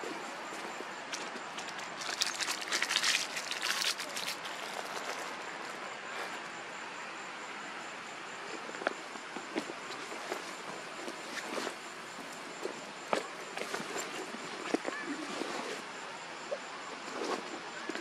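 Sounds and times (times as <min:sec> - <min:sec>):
insects chorus whine: 0:00.0 - 0:18.0.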